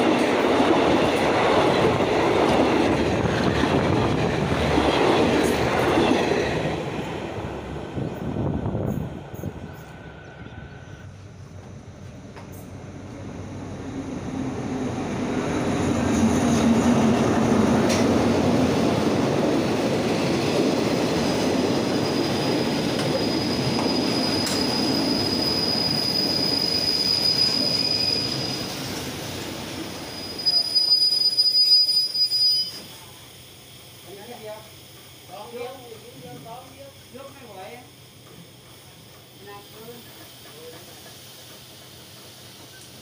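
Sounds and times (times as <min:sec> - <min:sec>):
train wheels rumbling on rail: 0:00.0 - 0:43.0
high wheel squeal: 0:21.9 - 0:29.1, 0:29.9 - 0:33.0.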